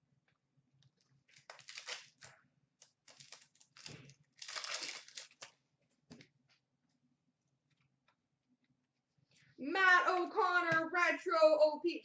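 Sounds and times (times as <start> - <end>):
card pack wrapper crinkling: 1.3 - 5.6.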